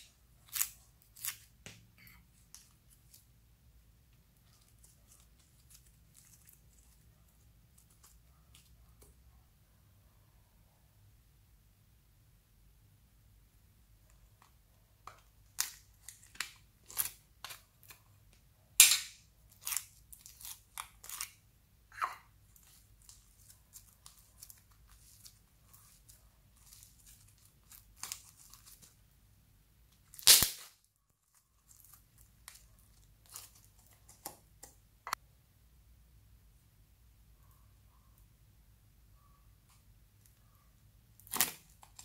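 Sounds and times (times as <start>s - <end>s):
slime crackling and popping: 30.1s - 30.8s.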